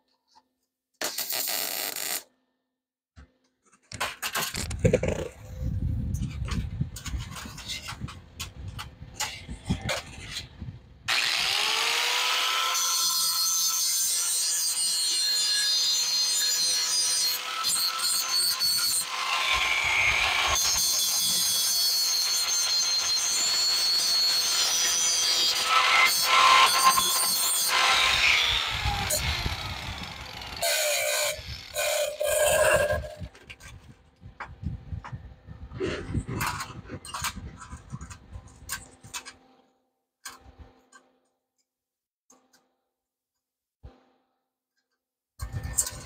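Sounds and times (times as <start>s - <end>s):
rotary tool grinding metal: 11.1s - 33.9s.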